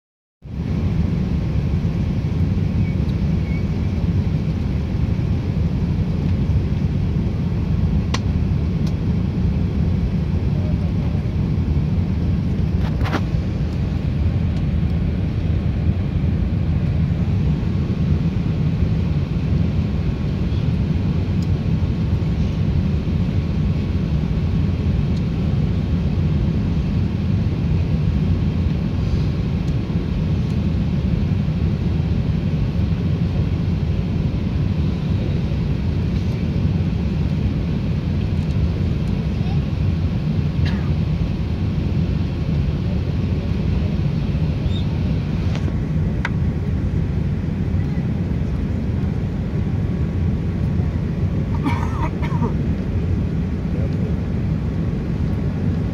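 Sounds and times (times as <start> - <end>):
airplane cabin engine rumble: 0.4 - 55.9.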